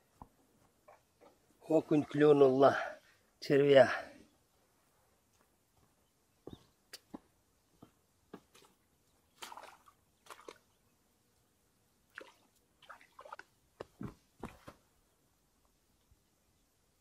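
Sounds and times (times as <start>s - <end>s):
rustling and scuffing on bank: 5.3s - 10.7s, 13.2s - 14.9s
light splash at water's edge: 8.5s - 10.8s, 12.1s - 13.5s.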